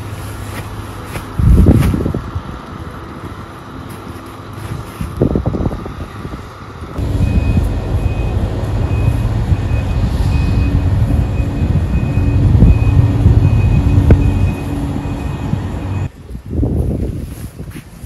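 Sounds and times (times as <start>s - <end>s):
heavy vehicle engine rumbling: 0.0s - 17.0s
reversing alarm beeping: 7.0s - 16.1s.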